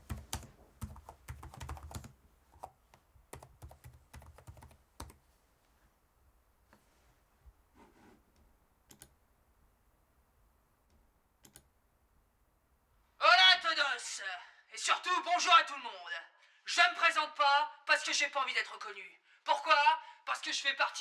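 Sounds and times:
typing on computer keyboard: 0.0s - 5.2s, 8.9s - 9.1s, 11.4s - 11.7s.

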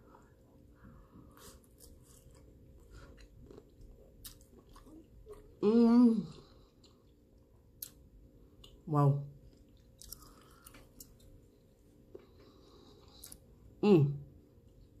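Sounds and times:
wet chewing and mouth smacks: 1.3s - 5.6s, 9.4s - 13.5s.

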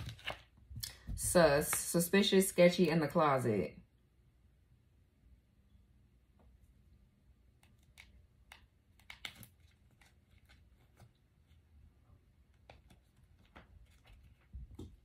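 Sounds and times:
cards clicking and rustling: 0.0s - 0.6s, 7.6s - 11.1s.

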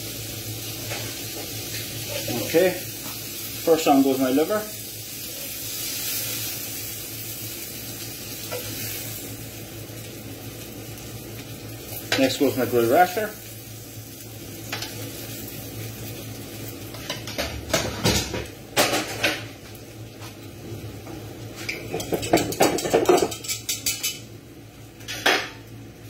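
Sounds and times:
cookware clattering: 21.8s - 24.2s.

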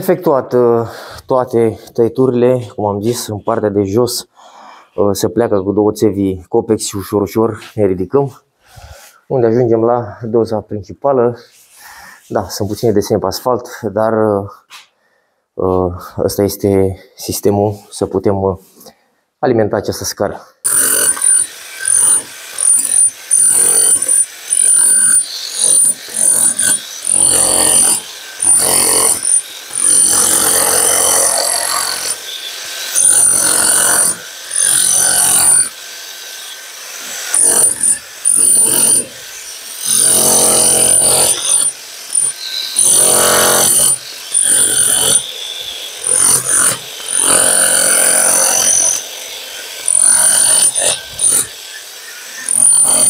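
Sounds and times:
power tool cutting concrete: 20.6s - 53.0s.

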